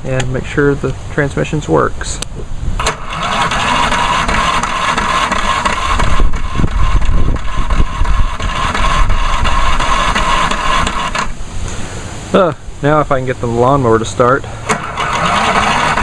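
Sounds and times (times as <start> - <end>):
lawnmower engine running: 2.3 - 11.5, 14.4 - 16.0.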